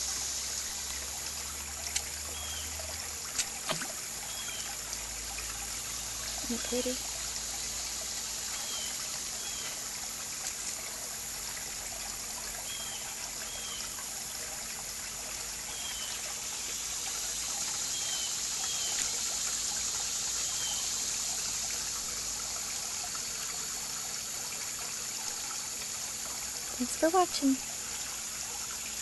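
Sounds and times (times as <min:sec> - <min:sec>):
constant high hiss: 0:00.0 - 0:29.0
pond water trickling: 0:00.0 - 0:29.0.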